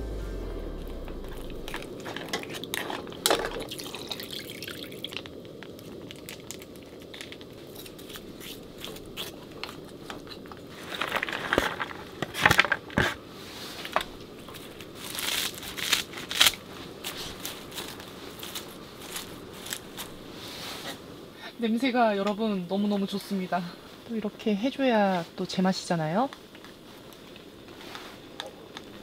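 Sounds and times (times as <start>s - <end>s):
bean sprouts dropped with rustle: 14.5s - 20.2s.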